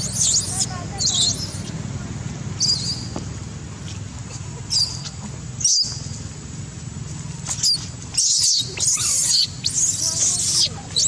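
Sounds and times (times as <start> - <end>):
baby monkey squeaking cries: 0.0 - 1.7, 4.7 - 6.0, 7.6 - 11.0
steady low hum: 0.0 - 11.0.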